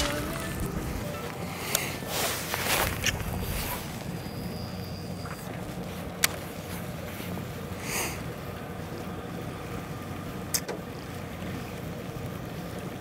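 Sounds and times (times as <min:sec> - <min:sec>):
boat engine idling: 0:00.0 - 0:13.0
sharp click: 0:10.5 - 0:10.8.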